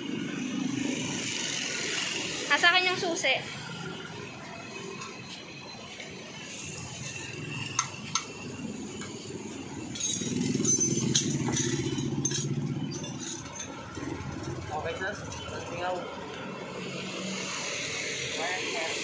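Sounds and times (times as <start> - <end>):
passing street traffic: 0.0 - 19.0
metallic tool clinks: 9.8 - 14.5
scooter engine idling: 13.4 - 16.2.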